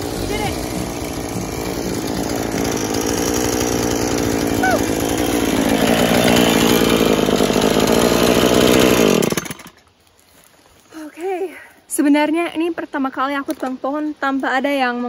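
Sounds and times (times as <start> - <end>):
chainsaw engine running: 0.0 - 9.8.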